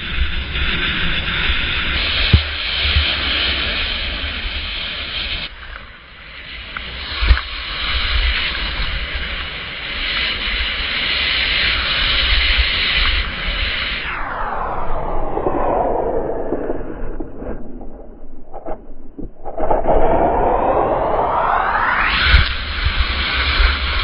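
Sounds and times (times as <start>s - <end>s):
wind rumbling on microphone: 0.0s - 24.0s
skis hissing over snow: 0.2s - 14.1s, 22.2s - 24.0s.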